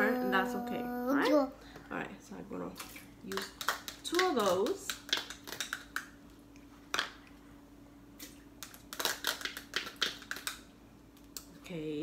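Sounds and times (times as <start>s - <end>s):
faint steady hum: 0.0s - 12.0s
plastic cups crinkling: 2.8s - 6.2s, 8.2s - 10.7s.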